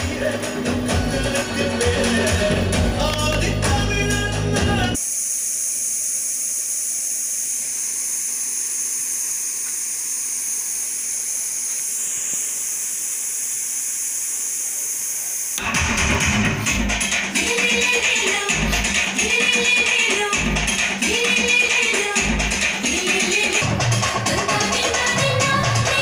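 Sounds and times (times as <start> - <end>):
music: 0.0 - 5.0, 15.6 - 26.0.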